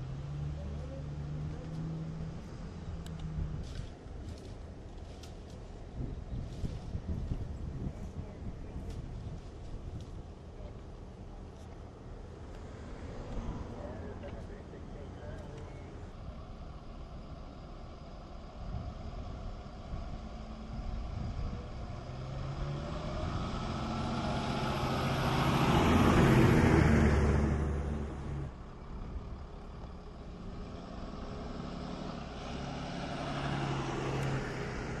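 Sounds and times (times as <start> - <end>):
fire engine driving past: 0.0 - 35.0
second vehicle engine: 0.0 - 35.0.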